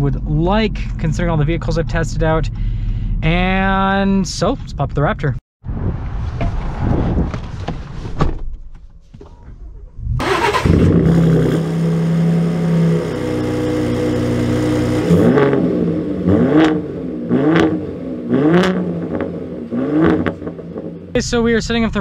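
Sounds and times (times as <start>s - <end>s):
engine starting and idling: 9.2s - 12.0s
engine revving: 9.9s - 21.2s.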